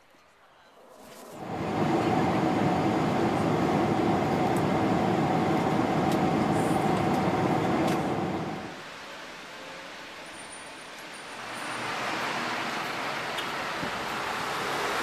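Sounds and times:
airliner cabin roar: 1.4 - 8.8.

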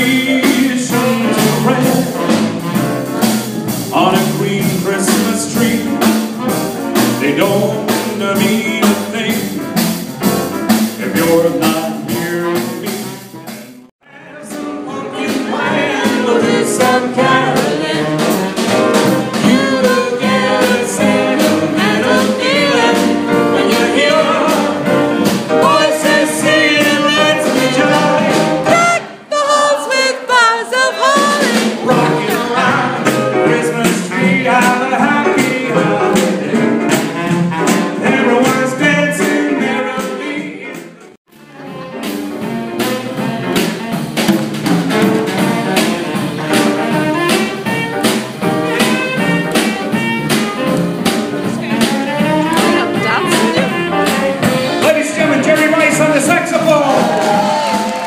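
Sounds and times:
small jazz band playing: 0.0 - 58.0
man crooning into microphone: 7.2 - 9.6, 52.5 - 53.9, 54.8 - 57.2.

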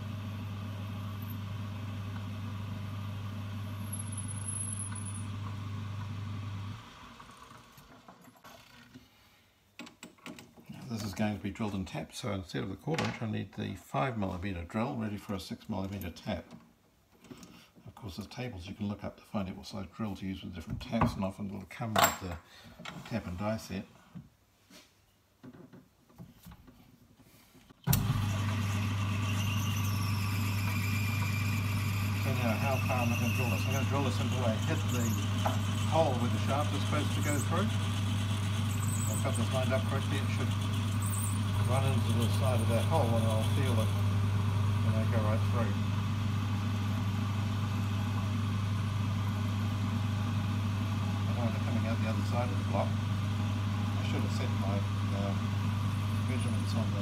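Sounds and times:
lathe motor humming: 27.9 - 57.0.

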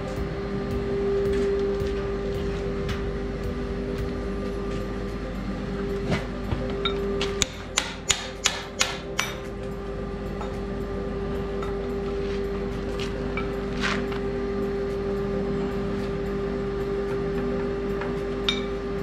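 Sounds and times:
workshop machine hum: 0.0 - 19.0.

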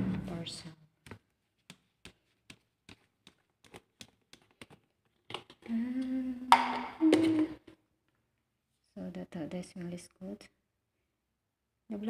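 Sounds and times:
woman humming: 5.7 - 7.7.

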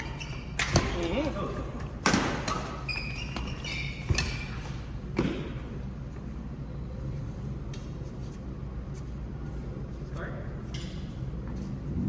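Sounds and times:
shoe squeaks on court floor: 0.0 - 1.0, 2.3 - 4.9
racket hitting shuttlecock: 0.0 - 1.3, 2.0 - 5.6
steady low hum: 0.0 - 12.0.

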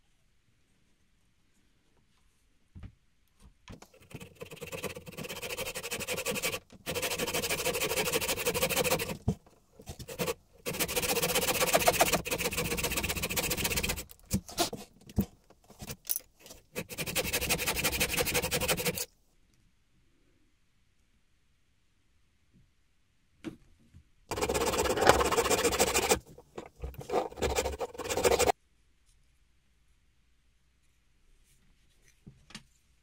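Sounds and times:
hand saw rasping through wood: 4.0 - 9.2, 9.9 - 14.7, 16.8 - 19.1, 24.3 - 28.5.

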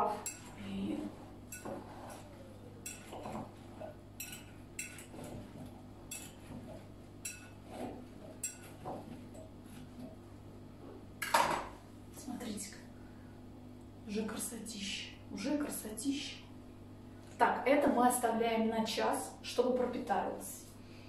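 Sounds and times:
fork clinking against glass bowl: 0.2 - 0.6, 2.8 - 3.4, 4.2 - 5.1, 6.1 - 6.4, 7.2 - 7.6, 8.4 - 8.8.

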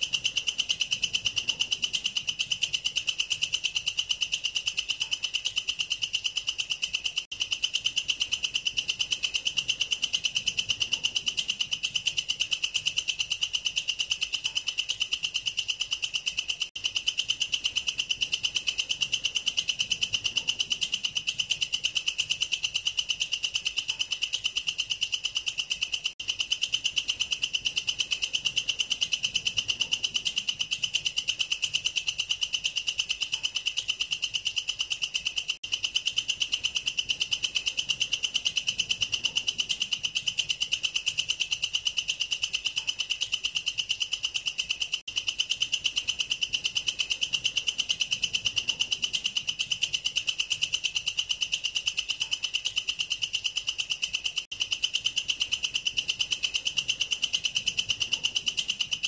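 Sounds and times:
bush cricket pulsing trill: 0.0 - 59.0.

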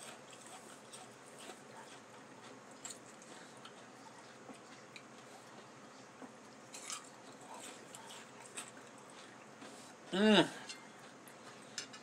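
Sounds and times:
close-miked chewing: 0.0 - 12.0.

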